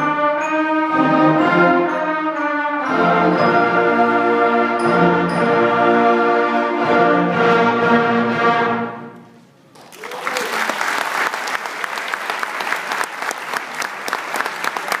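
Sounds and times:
audience applause: 9.7 - 15.0.

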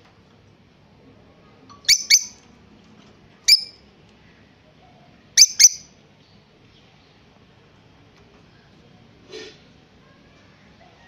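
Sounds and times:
parrot chirping: 1.8 - 2.4, 3.5 - 3.8, 5.4 - 5.9.

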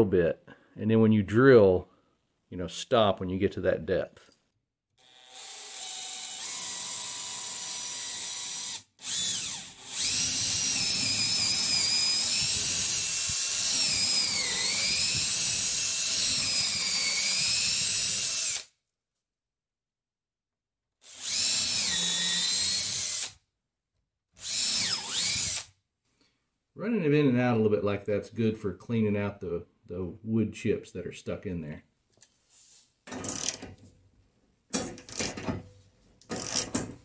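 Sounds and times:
power drill boring into wood: 5.0 - 18.7, 21.0 - 23.4, 24.4 - 25.7, 33.2 - 33.6, 35.1 - 35.4, 36.3 - 36.8.

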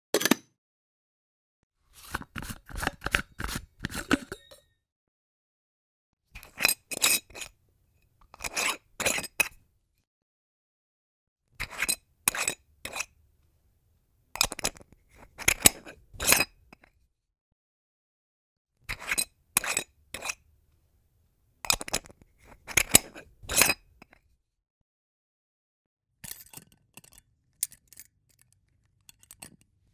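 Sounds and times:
jar clinks and scrapes: 2.0 - 4.8, 6.4 - 7.6, 8.3 - 9.6, 11.6 - 13.1, 14.4 - 16.9, 18.9 - 20.4, 21.7 - 24.2, 26.2 - 28.4, 29.0 - 29.8.

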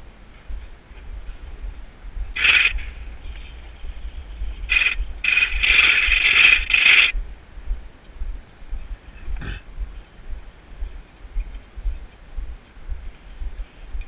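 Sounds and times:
metal gear scraping on rails: 2.3 - 7.2.

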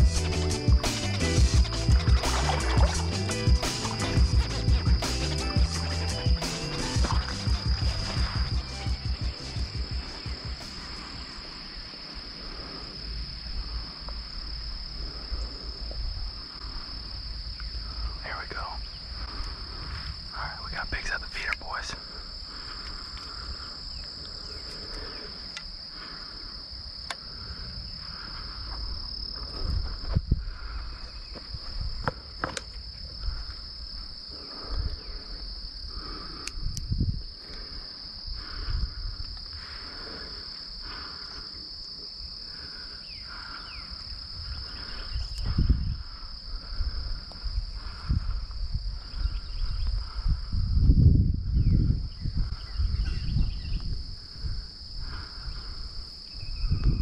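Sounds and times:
insects trilling: 0.0 - 57.0
footsteps on dirt and grass: 1.5 - 10.7.

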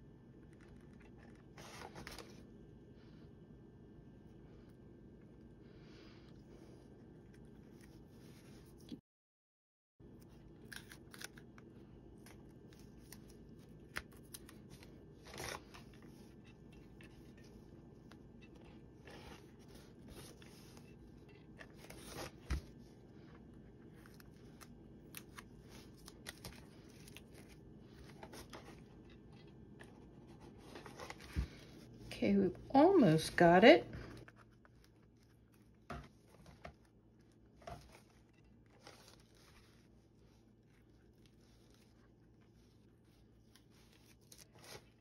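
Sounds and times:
low room hum: 0.0 - 9.0, 10.0 - 45.0
cardboard and tape rustling: 18.4 - 23.0, 24.0 - 32.1.

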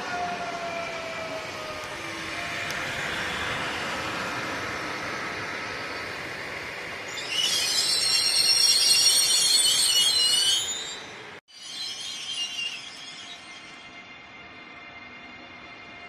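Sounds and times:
train rolling past: 0.0 - 16.0
shrill wheel squeal: 7.0 - 16.0.

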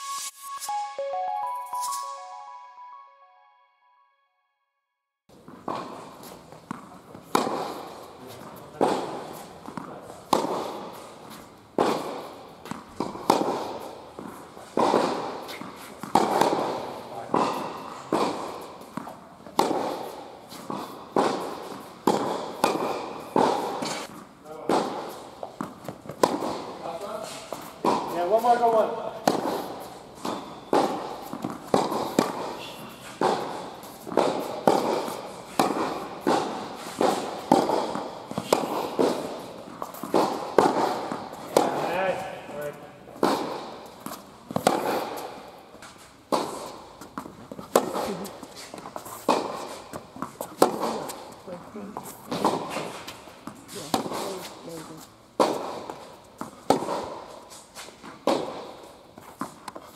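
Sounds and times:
tennis ball struck with rackets: 5.3 - 51.4, 52.0 - 54.6, 55.4 - 59.9
ball bouncing: 33.2 - 45.2.

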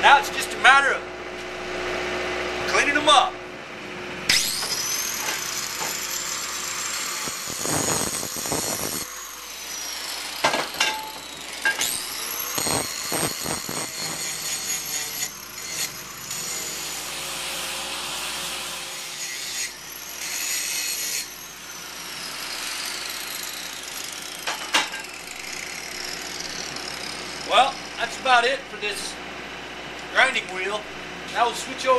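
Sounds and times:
angle grinder whine: 4.2 - 29.2
grinding wheel on metal: 4.3 - 28.3.

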